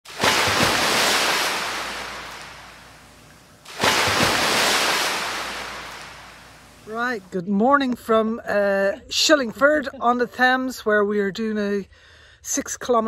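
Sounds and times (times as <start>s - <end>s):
waves breaking: 0.0s - 7.3s.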